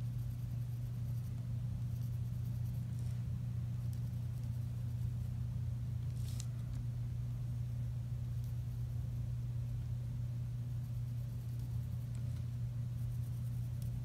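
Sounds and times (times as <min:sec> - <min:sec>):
pen scratching on paper: 0:00.0 - 0:05.2, 0:13.0 - 0:14.0
steady low hum: 0:00.0 - 0:14.0.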